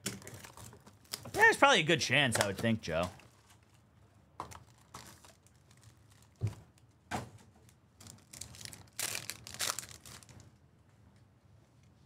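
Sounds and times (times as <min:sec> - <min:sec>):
wrappers crinkling and tearing: 0:00.2 - 0:01.5, 0:04.5 - 0:06.9, 0:07.6 - 0:10.6.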